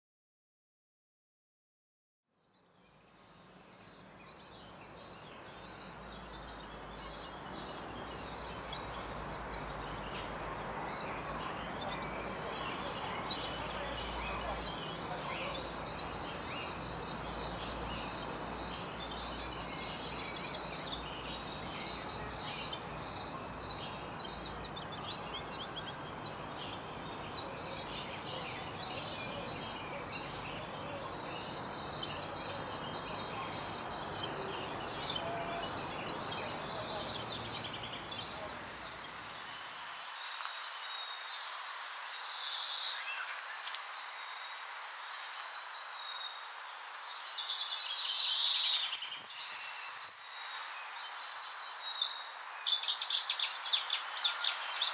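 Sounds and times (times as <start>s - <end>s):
crickets chirping: 3.0s - 54.9s
birds calling: 4.0s - 41.4s
steady hiss: 31.6s - 54.9s.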